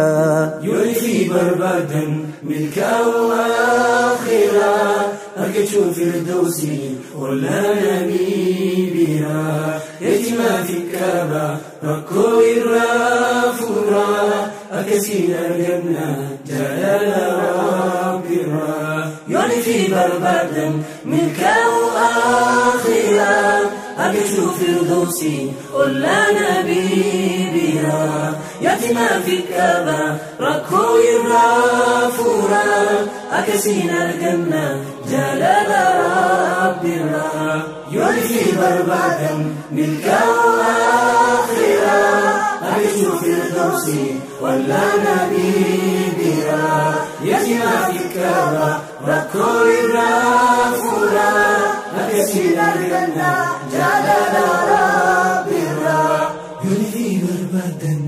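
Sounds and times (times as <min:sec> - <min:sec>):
man singing unaccompanied: 0:00.0 - 0:03.5.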